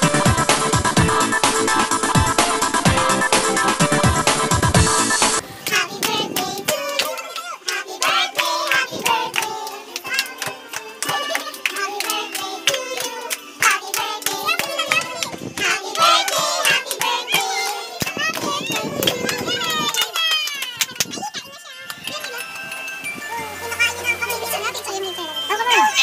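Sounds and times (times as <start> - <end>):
people singing a birthday song: 5.1 - 19.9
hands clapping in time: 5.6 - 23.1.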